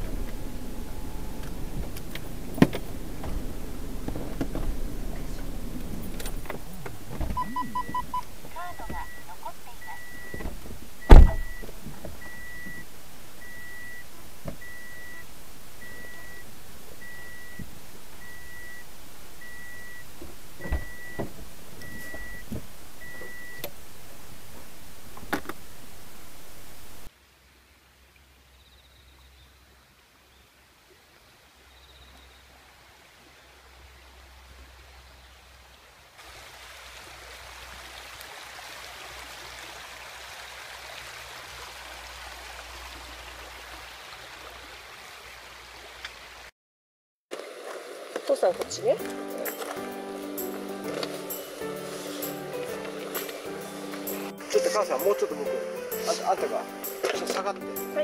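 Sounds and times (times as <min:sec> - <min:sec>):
rocky creek flowing: 0:00.0 - 0:46.5, 0:47.3 - 0:58.0
car warning chime beeping: 0:07.2 - 0:23.7.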